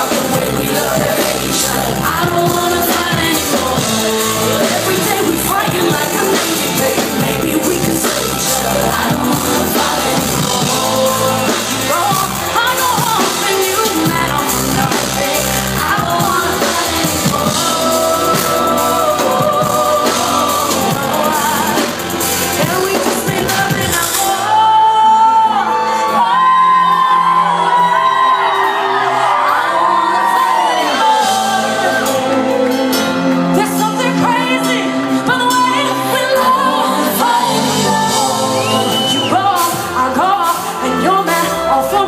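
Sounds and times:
live pop band: 0.0s - 42.0s
woman singing: 0.0s - 42.0s.

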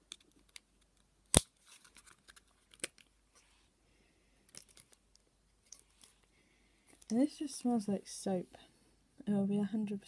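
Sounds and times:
plastic pot clicks and crinkles: 0.0s - 3.1s.

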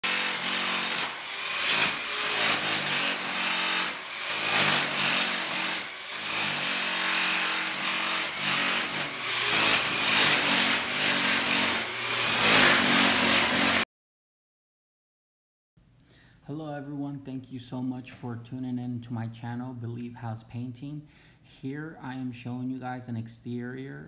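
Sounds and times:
demolition hammer chiselling tile: 0.0s - 13.8s.

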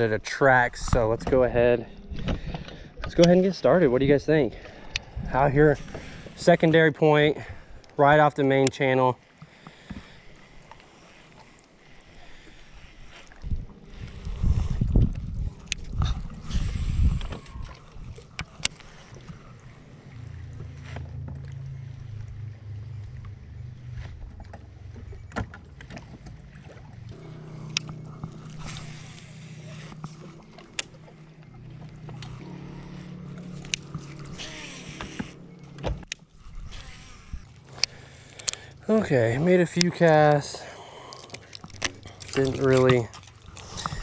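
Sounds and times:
wind rumble on microphone: 4.9s - 6.2s, 13.3s - 18.5s
electric trolling motor humming: 9.3s - 44.0s.

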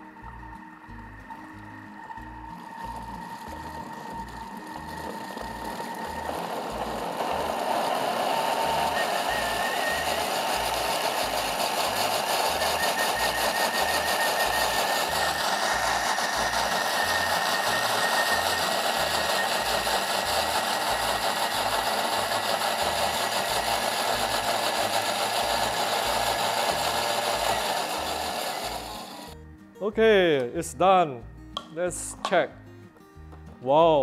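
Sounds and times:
blender motor whirring: 0.0s - 29.4s
blade chopping paste: 3.4s - 29.3s.

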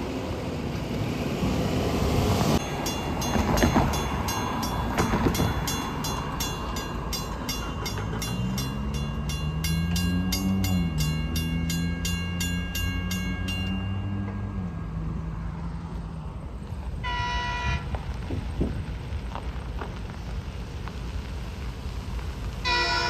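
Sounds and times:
diesel train approaching: 0.0s - 23.0s
crossing warning bell ringing: 2.6s - 16.2s, 17.0s - 17.9s, 22.6s - 23.0s.

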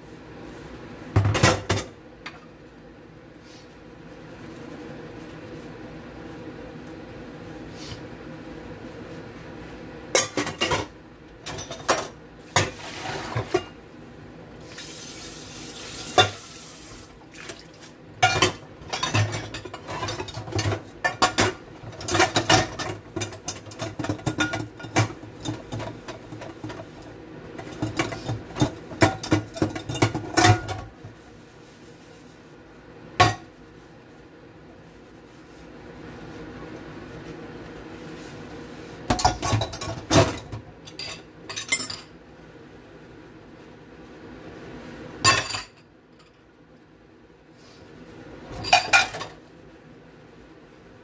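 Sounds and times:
pots clinking in a steel sink: 1.2s - 2.5s, 10.1s - 13.8s, 15.8s - 16.6s, 17.4s - 31.2s, 33.2s - 33.6s, 39.0s - 42.2s, 45.2s - 46.5s, 48.5s - 49.4s
sponge scrubbing pots: 12.6s - 13.6s.

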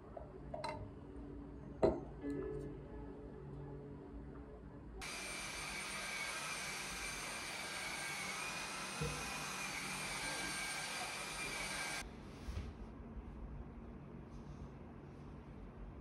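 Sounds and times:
vacuum cleaner rushing and whining: 5.0s - 12.0s.

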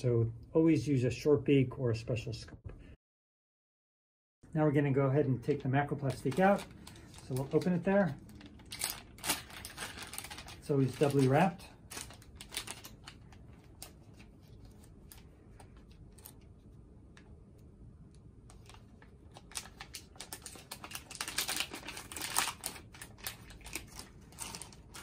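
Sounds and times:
foil packaging crinkling: 5.9s - 16.4s, 18.5s - 25.0s.

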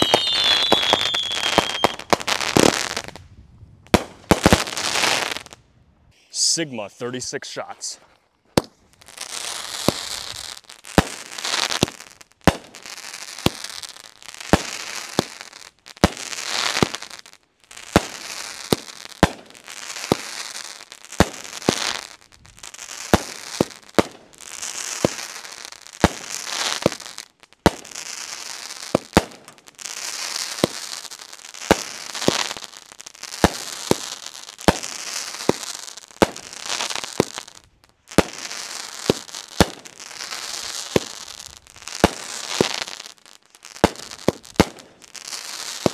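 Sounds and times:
firework hissing: 0.0s - 3.1s
firework bangs: 0.0s - 3.2s, 3.9s - 5.6s, 8.5s - 17.2s, 17.8s - 27.0s, 27.6s - 45.9s.

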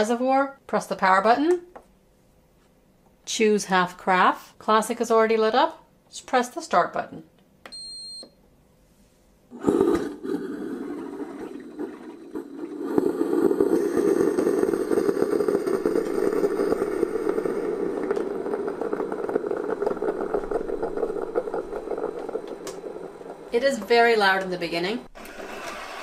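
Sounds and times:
coffee maker buzzing rattle: 9.8s - 26.0s.

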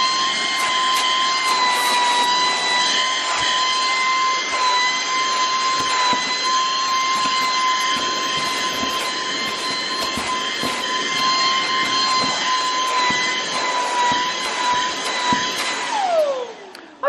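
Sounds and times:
stick vacuum cleaner whining: 0.0s - 17.0s
nozzle knocking on fabric: 7.1s - 15.8s.

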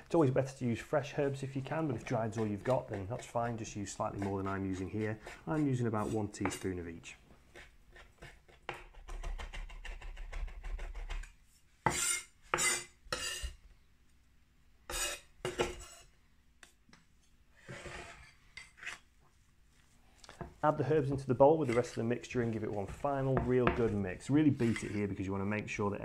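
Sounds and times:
scraping herbs across board: 1.3s - 6.8s, 7.5s - 13.6s, 14.9s - 16.0s, 19.7s - 25.3s.

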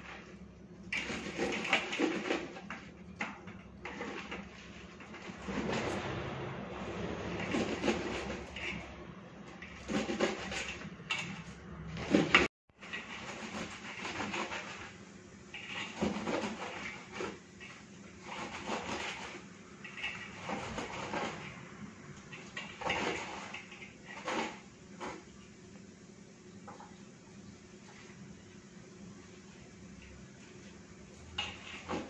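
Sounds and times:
knife chopping greens on metal plate: 9.7s - 11.3s.

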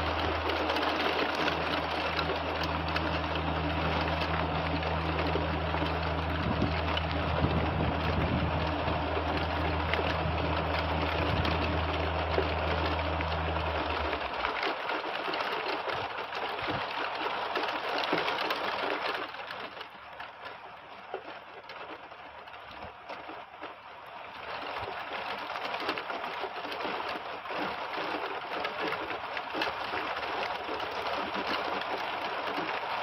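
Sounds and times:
heavy rain on trees and roofs: 0.0s - 33.0s.

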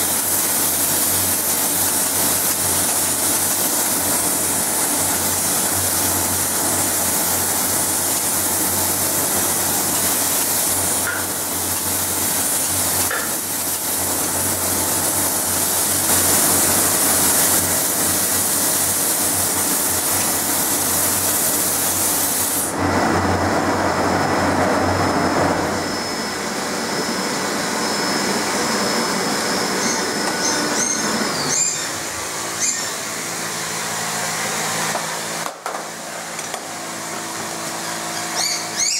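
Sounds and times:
spray gun hissing: 0.0s - 22.9s
thin steady whine: 0.0s - 38.9s.

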